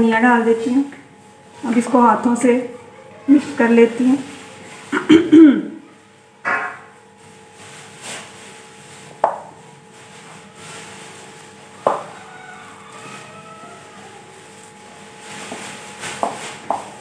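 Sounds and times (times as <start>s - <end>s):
hands mixing food in a bowl: 0.3s - 5.1s, 7.1s - 17.0s
sharp knocks: 6.4s - 6.8s.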